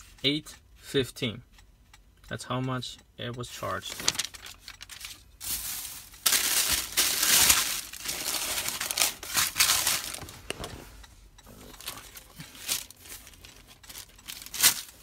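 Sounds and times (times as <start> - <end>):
paper wrapper crinkling: 3.9 - 10.3, 11.8 - 15.0.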